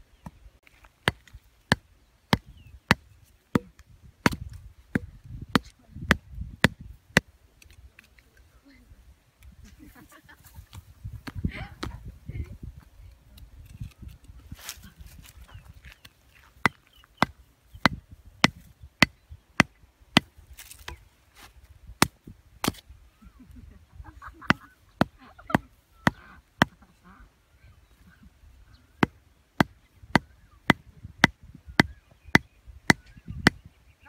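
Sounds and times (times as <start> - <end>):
hatchet knocking wooden stake: 1.0 - 7.8, 16.6 - 20.3, 22.0 - 22.8, 29.0 - 33.6.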